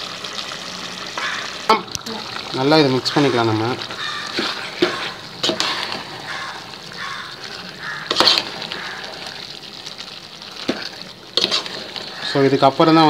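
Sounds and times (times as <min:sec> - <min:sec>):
food sizzling in a pot: 0:00.0 - 0:13.0
spatula scraping metal pot: 0:03.9 - 0:09.4, 0:10.6 - 0:13.0.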